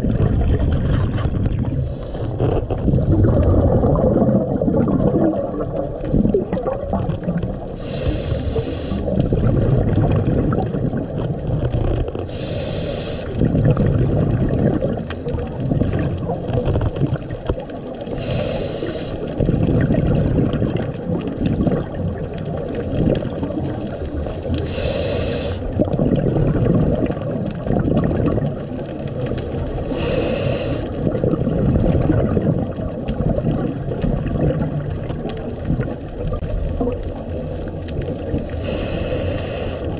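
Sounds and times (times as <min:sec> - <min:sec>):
bubbling exhale: 0:00.0 - 0:17.4, 0:18.1 - 0:28.7, 0:29.7 - 0:39.9
diver inhaling through regulator: 0:07.8 - 0:09.2, 0:12.3 - 0:13.4, 0:18.1 - 0:19.4, 0:24.6 - 0:25.8, 0:29.9 - 0:31.8, 0:38.5 - 0:39.9.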